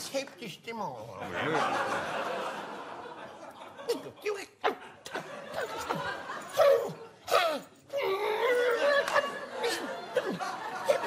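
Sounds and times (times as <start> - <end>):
audience laughter: 1.2 - 6.5, 8.8 - 11.0
man making comic yelps: 6.5 - 9.2.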